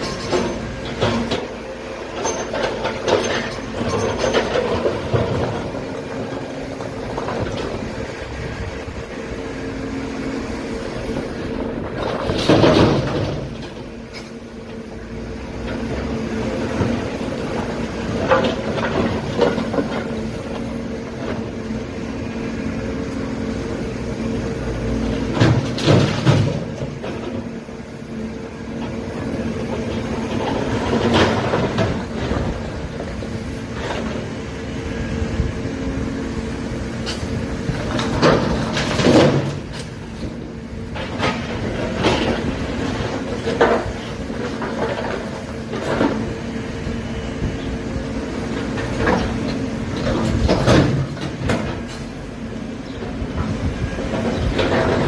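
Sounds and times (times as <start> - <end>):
excavator diesel engine running: 0.0 - 55.0
rubble crashing into truck bed: 11.9 - 13.6.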